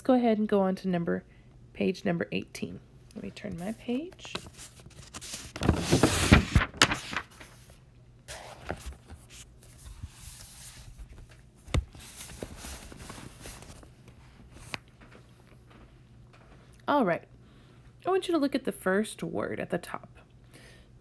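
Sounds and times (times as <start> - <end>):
paper page rustling: 3.5 - 15.0.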